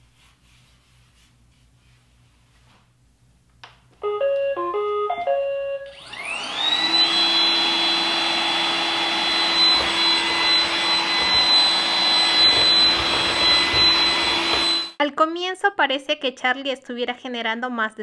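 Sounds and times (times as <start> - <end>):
robot vacuum start-up beeps: 4.0 - 8.2, 9.1 - 15.0
vacuum motor whine: 5.8 - 15.0.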